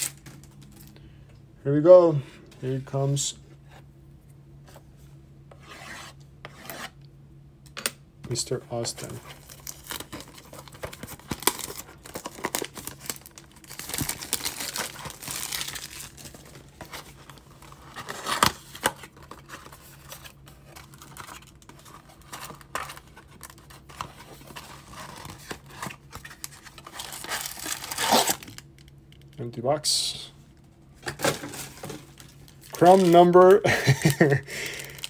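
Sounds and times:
plastic wrap crinkling and tearing: 0:00.0 - 0:00.9, 0:09.3 - 0:28.9, 0:31.2 - 0:35.0
cardboard box torn apart: 0:27.0 - 0:28.5.

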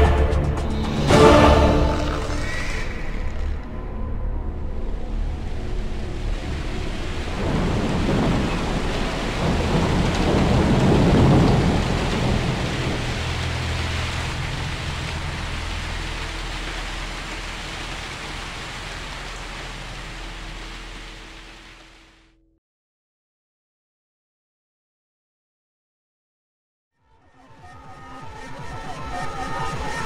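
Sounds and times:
steady rain hissing: 0:00.7 - 0:03.8, 0:04.8 - 0:22.4
rolling thunder: 0:05.5 - 0:20.6.

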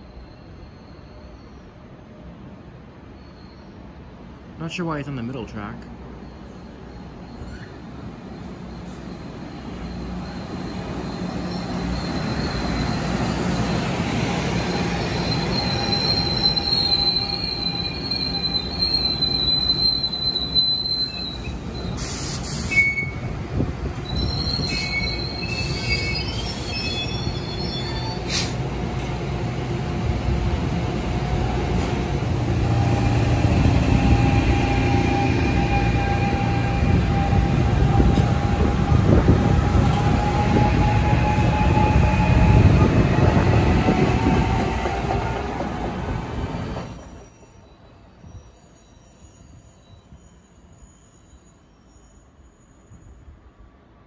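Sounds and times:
train wheels squealing: 0:00.0 - 0:04.4, 0:06.1 - 0:54.0
train wheel rumble: 0:21.4 - 0:47.3.

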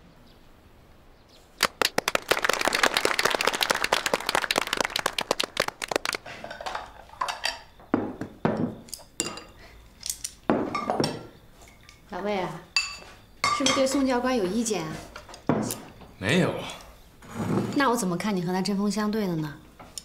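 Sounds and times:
small group clapping: 0:01.6 - 0:06.4
porcelain bowls and chopsticks clinking: 0:08.8 - 0:09.6, 0:12.7 - 0:14.1.

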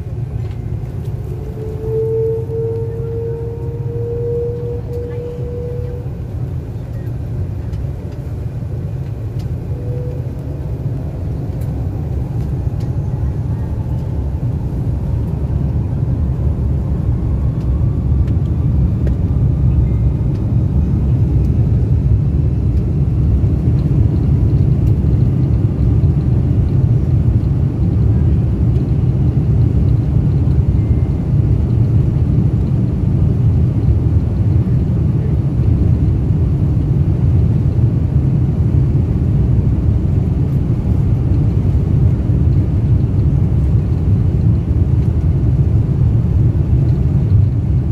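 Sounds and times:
faint engine whine: 0:00.0 - 0:47.9
jet airliner cabin rumble: 0:00.0 - 0:47.9.

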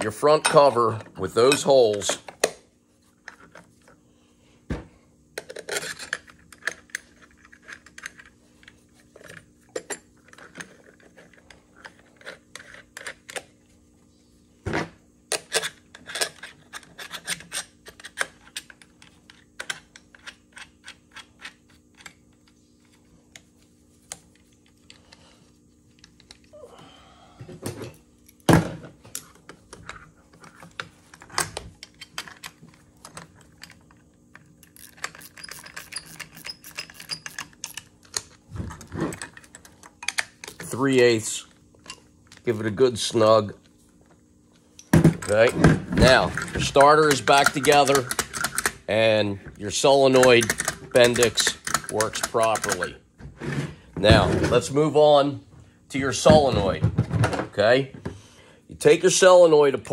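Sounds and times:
faint steady hum: 0:00.0 - 0:59.9
metal parts clicking and tapping: 0:34.6 - 0:38.4, 0:44.8 - 0:48.8, 0:50.1 - 0:52.9.

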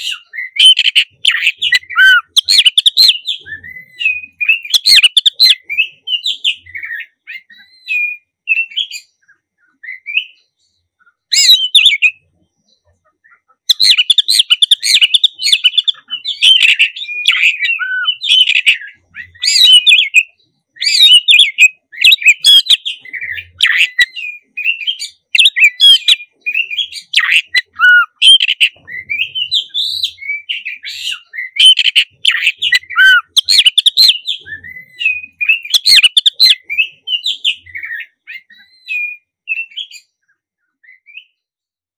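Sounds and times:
magpie-robin singing: 0:00.0 - 0:41.5.

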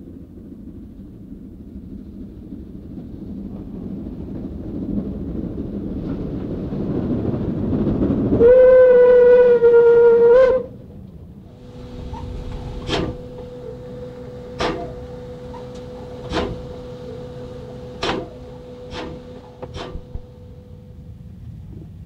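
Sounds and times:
steam locomotive running: 0:00.0 - 0:22.0
steam whistle blast: 0:08.4 - 0:10.8, 0:11.5 - 0:20.8.

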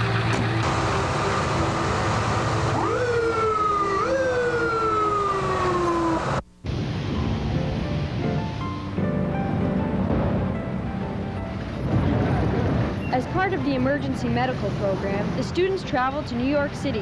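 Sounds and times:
music: 0:00.0 - 0:01.8, 0:06.8 - 0:17.0
vehicle engine noise: 0:00.0 - 0:17.0
ambulance siren wailing: 0:00.6 - 0:06.4.

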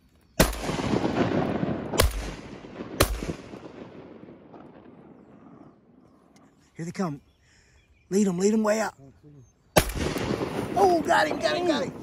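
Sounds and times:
shotgun blasts with rolling echo: 0:00.4 - 0:05.6, 0:09.8 - 0:12.0.

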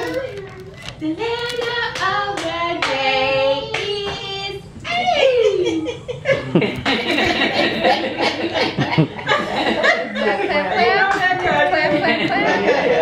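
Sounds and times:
hand claps: 0:01.5 - 0:03.0.

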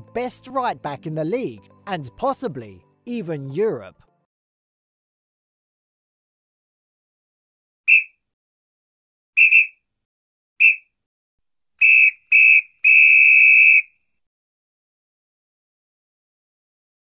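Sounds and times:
high whistle-like pips: 0:07.9 - 0:08.2, 0:09.4 - 0:09.8, 0:10.6 - 0:10.9, 0:11.8 - 0:14.0.

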